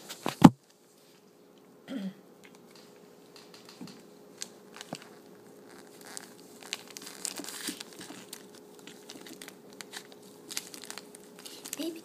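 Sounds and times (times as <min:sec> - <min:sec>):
wrapper crinkling: 0:03.5 - 0:12.0.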